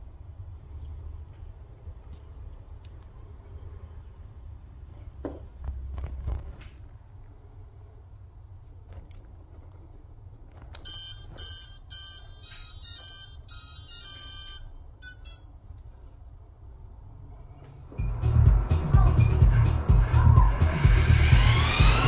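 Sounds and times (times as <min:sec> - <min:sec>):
drone motor start-up beeps: 0:10.9 - 0:15.6.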